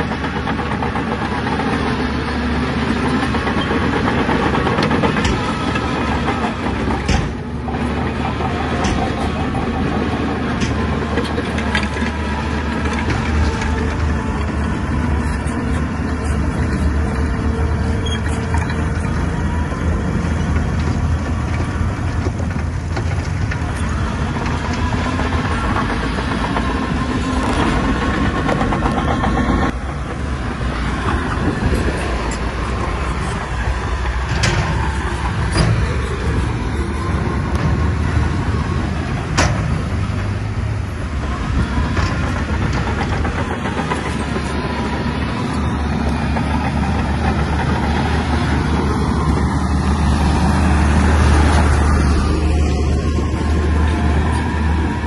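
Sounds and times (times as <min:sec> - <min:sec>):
diesel engine running under load: 0:00.0 - 0:55.0.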